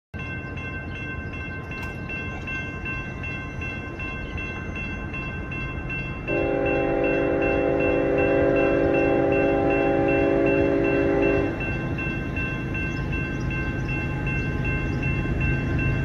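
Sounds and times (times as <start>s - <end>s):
crossing bell ringing: 0.2s - 16.0s
locomotive horn: 6.3s - 11.8s.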